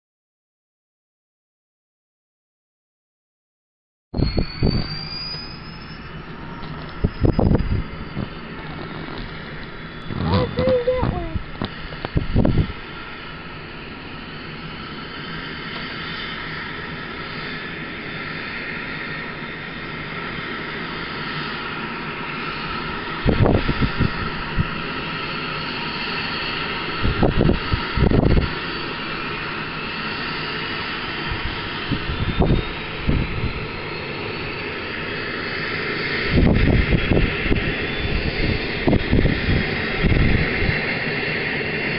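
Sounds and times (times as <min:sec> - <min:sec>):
helicopter engine whine and rotor: 0:04.2 - 0:41.9
wind buffeting microphone: 0:06.4 - 0:13.0, 0:23.1 - 0:24.9, 0:26.9 - 0:28.6, 0:31.2 - 0:33.8, 0:36.1 - 0:41.5.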